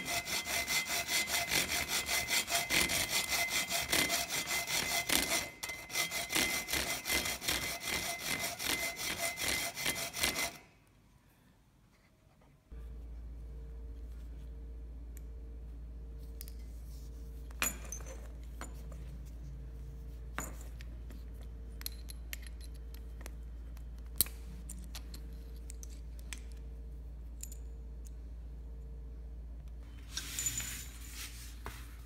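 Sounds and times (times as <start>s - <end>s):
low electrical hum: 0.0s - 32.0s
small clicks and clinks: 21.6s - 26.7s, 27.3s - 28.3s.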